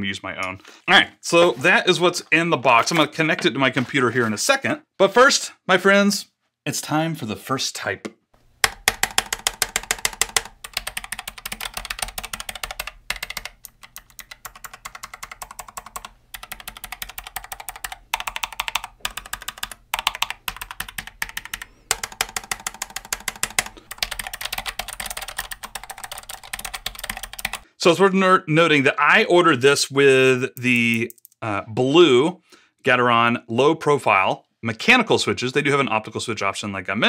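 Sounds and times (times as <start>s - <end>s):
clicky mechanical keyboard typing: 8.6s - 27.6s, 30.6s - 31.4s.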